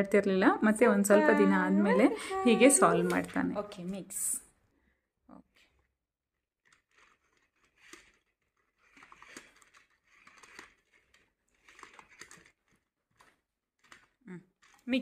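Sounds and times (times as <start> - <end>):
plastic discs sliding and clicking: 6.6 - 14.8.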